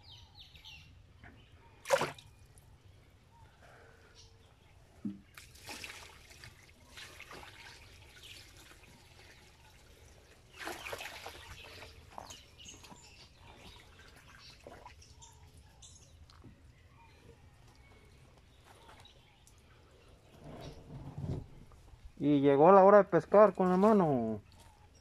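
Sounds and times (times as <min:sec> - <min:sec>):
water splashing in a tub: 0:01.8 - 0:02.3, 0:05.2 - 0:12.3, 0:13.6 - 0:15.2
water dripping and trickling: 0:05.1 - 0:16.5.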